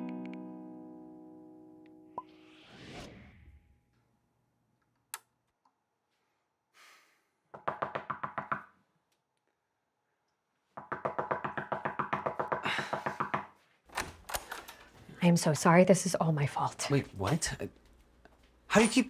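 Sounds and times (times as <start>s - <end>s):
acoustic guitar music: 0.0s - 2.2s
rapid knocking on a door: 7.6s - 8.7s, 10.8s - 13.5s.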